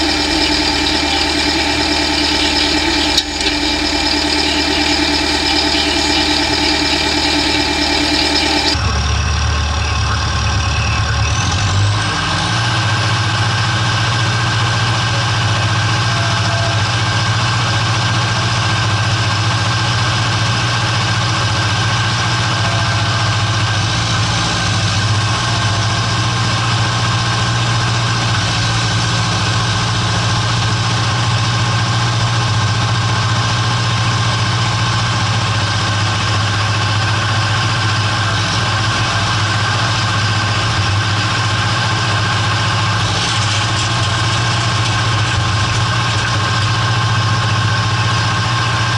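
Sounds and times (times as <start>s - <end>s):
tractor engine running: 0.0s - 11.3s.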